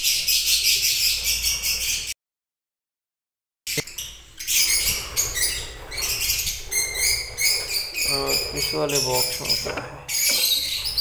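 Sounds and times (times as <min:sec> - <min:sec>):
birds chirping: 0:00.0 - 0:02.2, 0:03.7 - 0:11.0.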